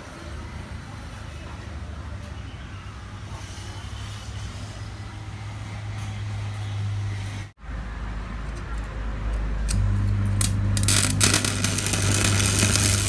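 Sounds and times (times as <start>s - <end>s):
arc welding machine humming: 9.6s - 13.0s.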